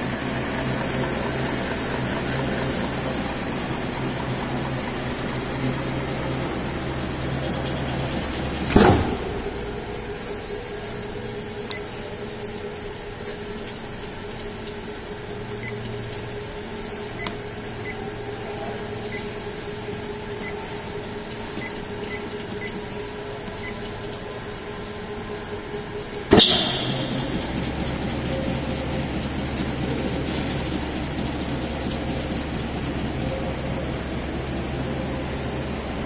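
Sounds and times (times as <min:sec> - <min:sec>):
motor humming: 0:00.0 - 0:36.0
stamping press rumbling: 0:06.7 - 0:10.1
loud clunk with hiss: 0:08.6 - 0:09.6, 0:26.3 - 0:27.4, 0:30.2 - 0:30.8.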